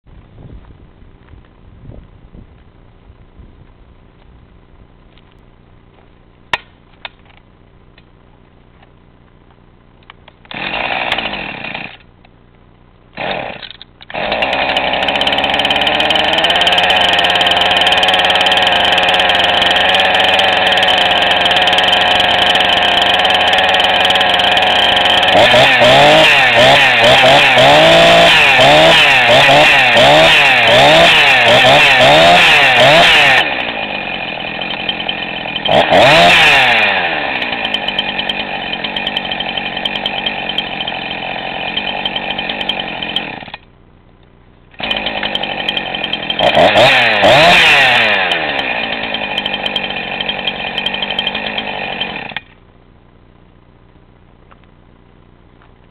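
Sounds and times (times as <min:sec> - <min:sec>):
chainsaw revving and idling: 0:10.4 - 0:12.1, 0:13.1 - 0:43.7, 0:44.7 - 0:52.6.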